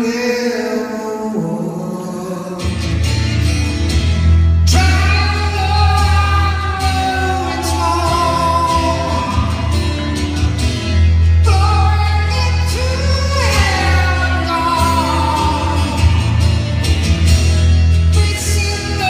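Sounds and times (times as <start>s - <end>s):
acoustic guitar: 0.0s - 19.0s
low bass through speakers: 2.8s - 19.0s
person singing: 4.7s - 17.0s, 18.0s - 19.0s.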